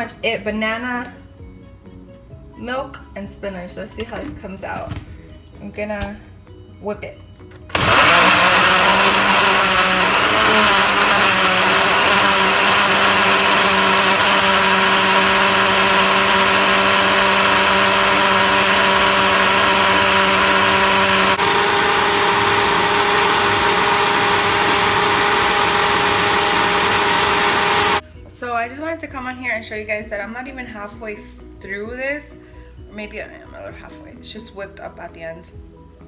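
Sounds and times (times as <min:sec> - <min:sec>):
electric blender running: 0:07.7 - 0:28.0.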